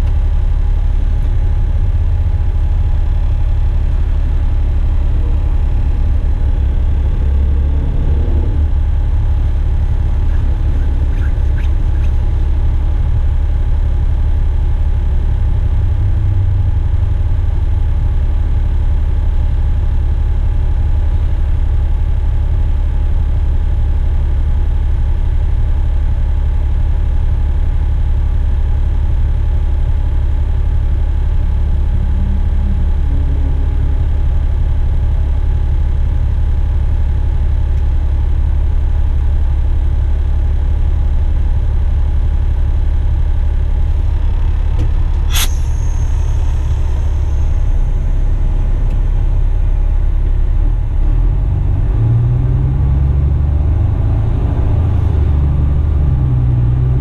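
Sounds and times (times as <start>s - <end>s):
truck diesel engine idling: 0.0s - 25.2s, 25.8s - 51.7s
sharp click: 44.8s - 47.6s.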